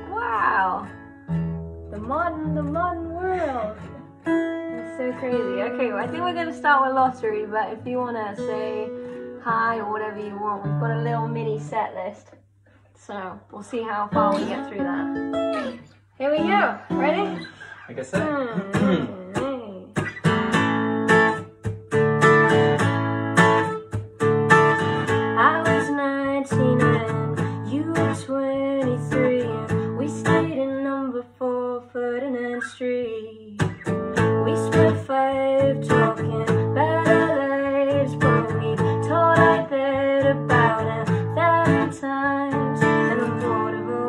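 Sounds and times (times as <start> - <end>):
acoustic guitar strummed: 0.0 - 11.9, 14.0 - 30.9, 33.6 - 44.0
woman singing: 1.9 - 4.1, 4.7 - 12.1, 13.8 - 17.5, 18.2 - 20.0, 25.3 - 44.0.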